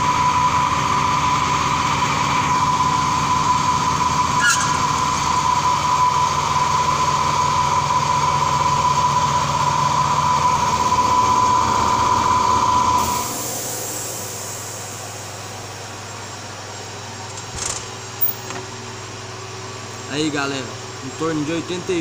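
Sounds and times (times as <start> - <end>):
lathe high-pitched whine: 0.0 - 17.1.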